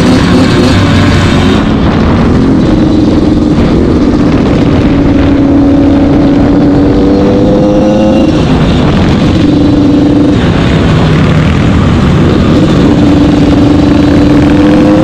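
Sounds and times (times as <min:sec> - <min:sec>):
motorcycle engines running: 0:00.0 - 0:15.0
wind noise on microphone: 0:00.0 - 0:15.0.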